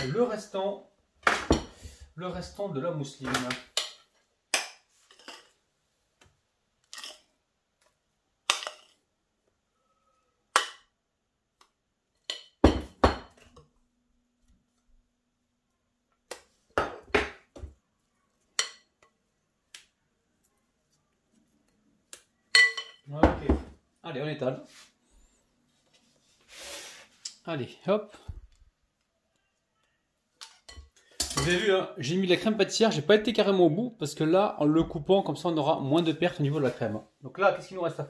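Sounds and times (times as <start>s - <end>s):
utensil clinking glass bowl: 22.5s - 23.1s.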